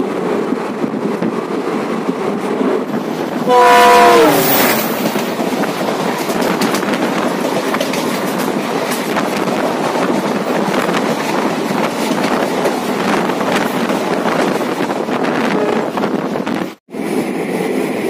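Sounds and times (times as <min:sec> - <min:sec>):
train rumble: 0:00.0 - 0:18.0
train wheels clattering: 0:04.4 - 0:14.8.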